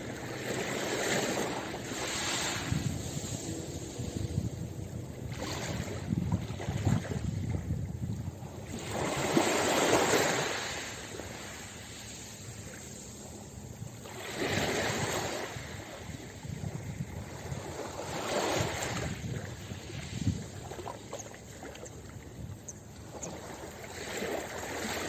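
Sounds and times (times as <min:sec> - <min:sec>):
waves breaking on pebble beach: 0:00.0 - 0:04.0, 0:08.7 - 0:12.2, 0:14.1 - 0:15.8
water lapping: 0:00.0 - 0:25.0.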